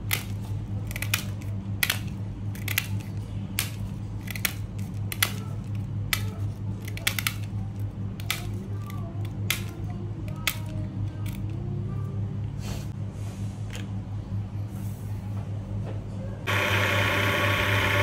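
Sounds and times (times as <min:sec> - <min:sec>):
scissors snipping plastic: 0:00.0 - 0:11.6
steady low hum: 0:00.0 - 0:18.0.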